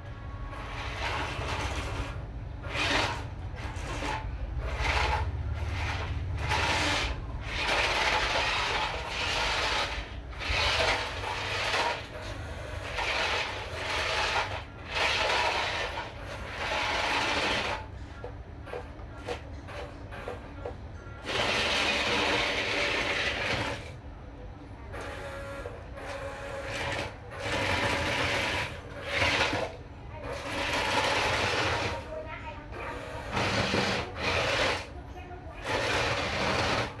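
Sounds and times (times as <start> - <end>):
toy truck electric motor: 0.0 - 17.9, 21.2 - 24.0, 25.0 - 35.0, 35.6 - 37.0.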